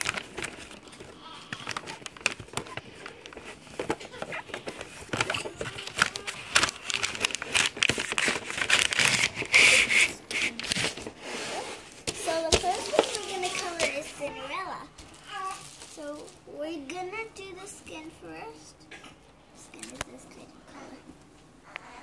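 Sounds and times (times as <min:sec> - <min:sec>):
paper rustling and crinkling: 0:00.0 - 0:16.5.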